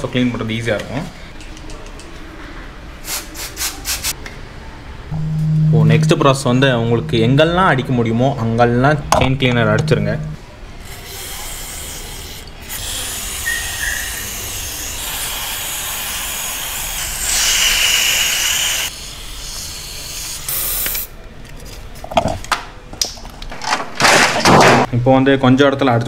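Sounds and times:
aerosol spray hissing: 11.1 - 21.1.

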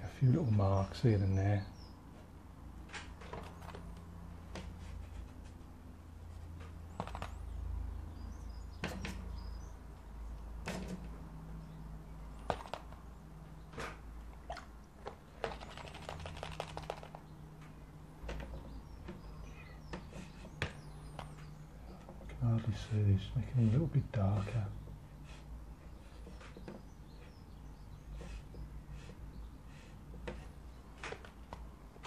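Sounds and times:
quick run of ticks: 15.4 - 17.3.

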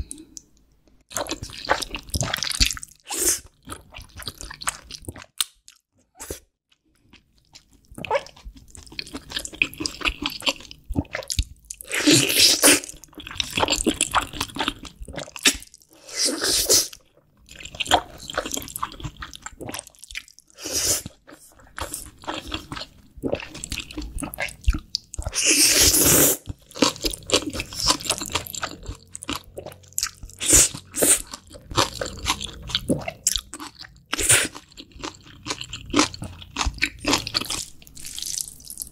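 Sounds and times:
wet chewing: 1.1 - 5.8, 16.9 - 38.9.

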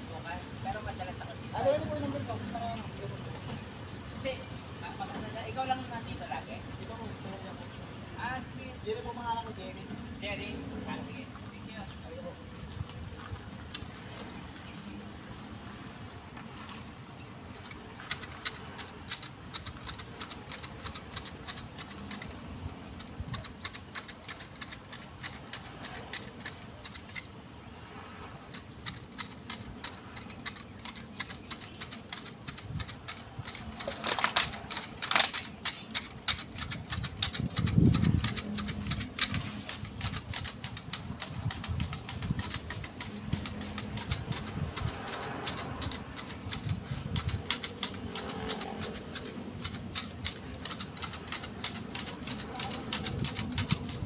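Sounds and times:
hedge shears snipping: 17.4 - 27.5, 28.5 - 54.0.

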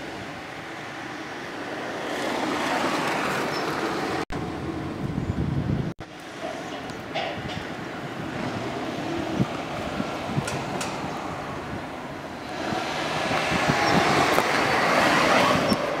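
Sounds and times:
passing vehicle rushing: 8.2 - 16.0.

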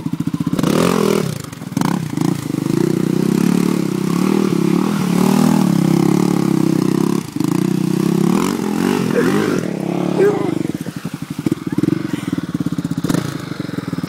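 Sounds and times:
quad engine revving in mud: 0.0 - 14.0.

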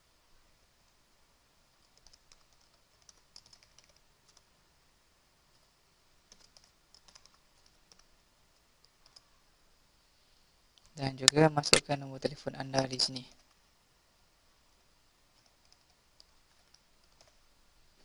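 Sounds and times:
faint keyboard typing: 1.7 - 4.5, 5.5 - 9.4, 12.7 - 13.6, 15.3 - 17.5.

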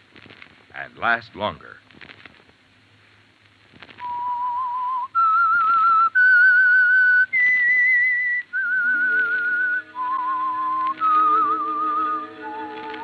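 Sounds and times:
person whistling a tune: 4.0 - 13.0.

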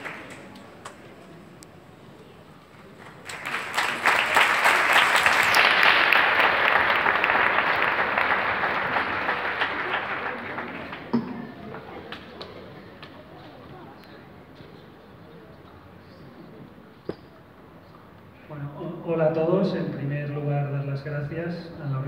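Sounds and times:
audience applauding: 0.0 - 1.2, 2.7 - 12.5.

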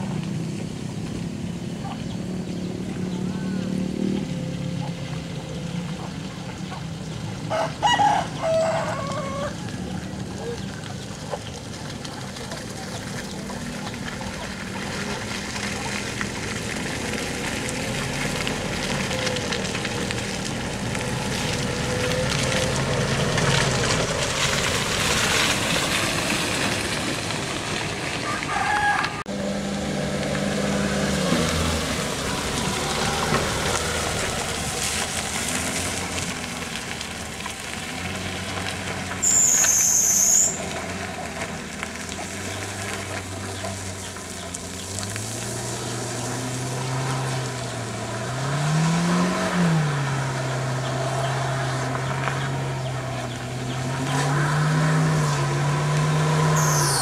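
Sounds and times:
other vehicle engines: 0.0 - 57.0
truck engine labouring: 0.0 - 57.0.

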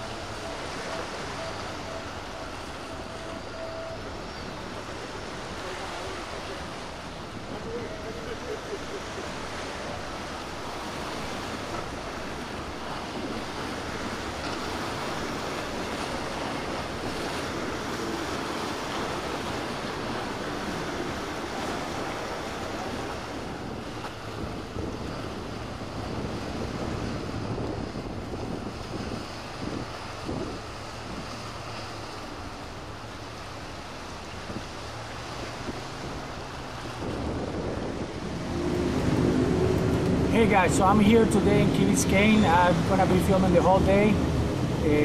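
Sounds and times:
sea waves washing: 0.0 - 45.0
wind noise on microphone: 10.1 - 45.0.

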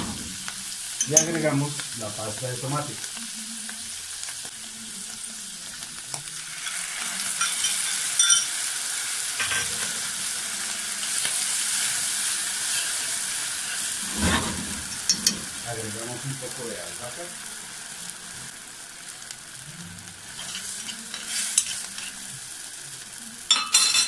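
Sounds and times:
mushrooms sizzling in a frying pan: 0.0 - 24.0
metal spoon scraping a pan: 6.4 - 8.6, 9.4 - 10.1, 12.6 - 15.7, 20.3 - 22.3.

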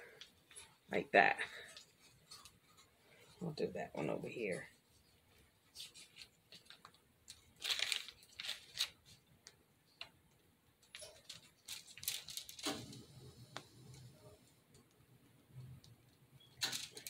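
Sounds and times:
plastic piping bag crinkling: 5.7 - 9.2, 10.9 - 13.2, 16.6 - 17.0.

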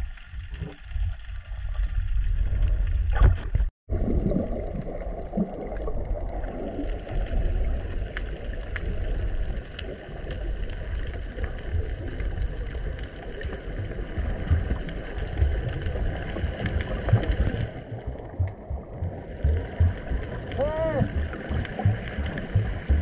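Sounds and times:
underwater rumble: 0.0 - 23.0
faint clicks and crackles: 4.6 - 23.0.

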